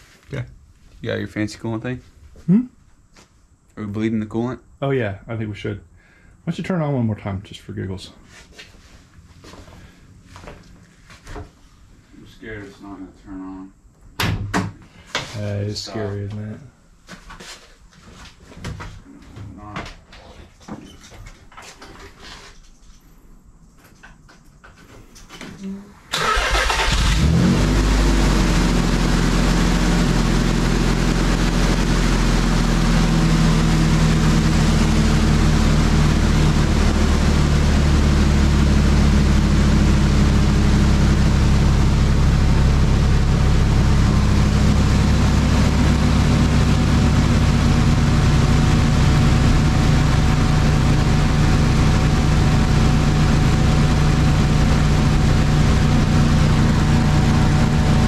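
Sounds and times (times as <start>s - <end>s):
car engine starting and idling: 26.1s - 58.0s.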